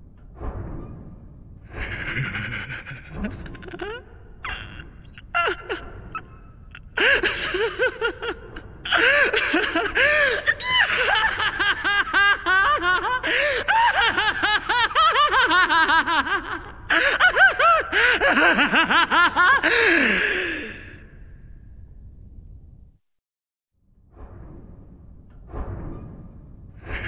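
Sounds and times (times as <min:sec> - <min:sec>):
high-pitched villainous laughter: 0:01.7 - 0:20.9
person gasping: 0:19.6 - 0:21.1.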